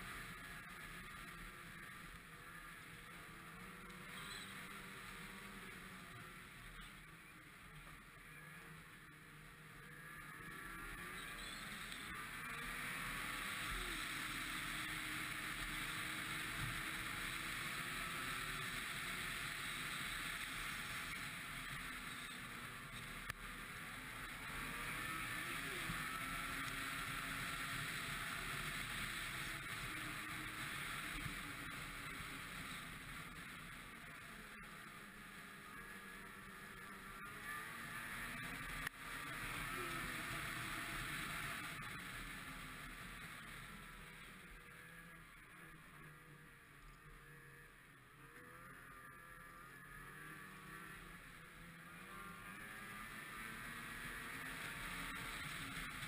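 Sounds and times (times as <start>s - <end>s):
snowmobile engine running: 0.0s - 56.0s
hiss of track on snow: 10.0s - 44.6s, 52.1s - 56.0s.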